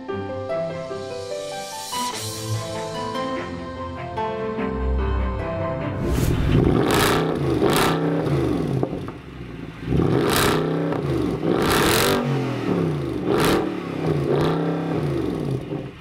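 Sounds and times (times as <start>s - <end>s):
car engine revving: 6.0s - 16.0s.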